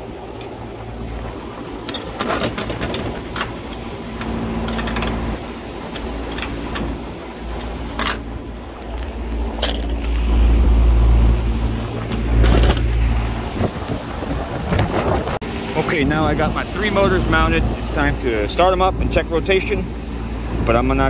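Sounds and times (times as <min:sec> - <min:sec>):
low machinery hum: 0:00.0 - 0:21.0
phone handling rumble: 0:01.7 - 0:15.4.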